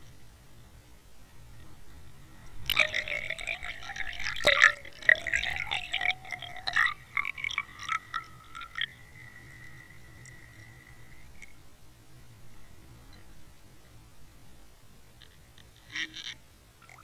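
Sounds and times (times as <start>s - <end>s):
water bubbling and splashing: 2.7s - 11.4s.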